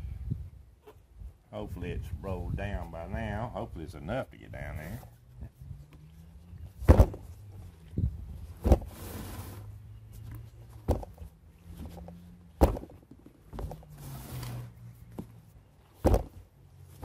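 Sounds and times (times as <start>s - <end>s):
tire thumping on wooden table: 12.6s - 13.8s, 16.0s - 16.4s.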